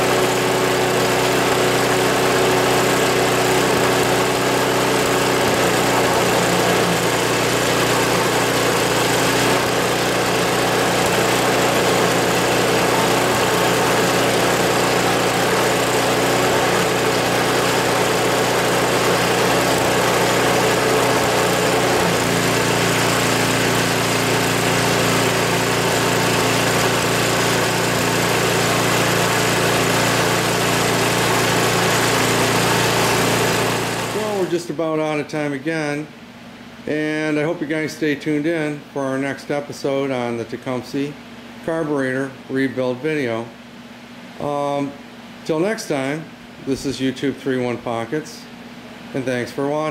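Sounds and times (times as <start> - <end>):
small engine running: 0.0 - 34.6.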